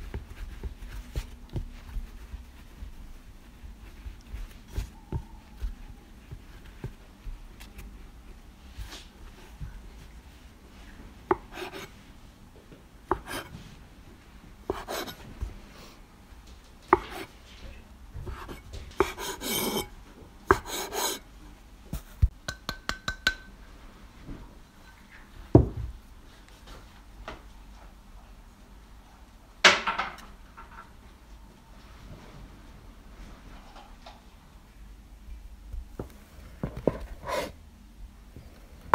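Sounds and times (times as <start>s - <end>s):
knife cutting dough on wooden board: 11.3s - 11.9s, 13.1s - 13.6s, 14.7s - 15.3s, 16.9s - 17.3s, 18.2s - 19.9s, 20.5s - 21.2s, 36.6s - 37.6s
knife scraping board: 11.3s - 11.9s, 13.1s - 13.6s, 14.7s - 15.3s, 16.9s - 17.3s, 18.2s - 19.9s, 20.5s - 21.2s, 36.8s - 37.6s.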